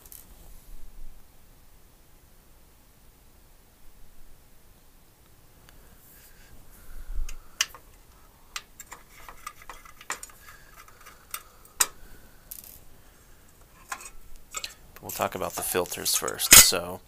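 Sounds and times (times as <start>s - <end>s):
small hard parts clicking: 7.3s - 12.9s, 13.5s - 16.8s.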